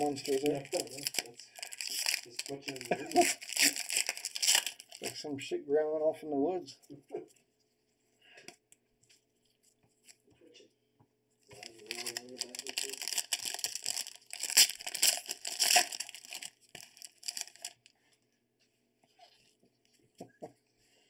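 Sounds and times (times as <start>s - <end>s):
wrapper tearing and crinkling: 0.0s - 5.2s, 11.5s - 17.9s.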